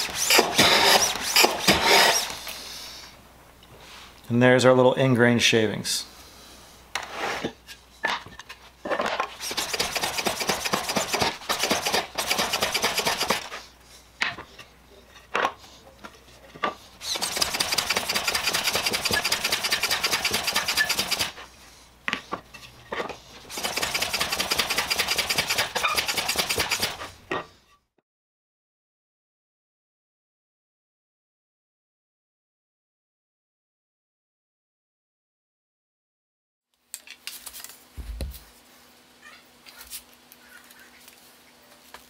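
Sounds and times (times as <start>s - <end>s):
hand plane shaving wood: 0.0s - 2.4s, 9.3s - 13.6s.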